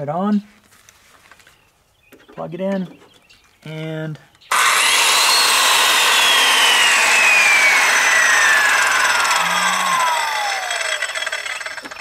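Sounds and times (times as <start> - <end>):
circular saw whining: 4.5 - 12.0.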